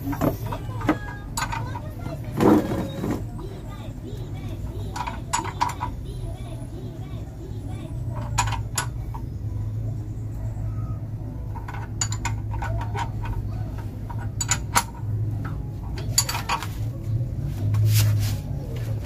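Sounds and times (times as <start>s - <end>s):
metal tools clinking: 11.5s - 15.1s, 15.8s - 16.8s.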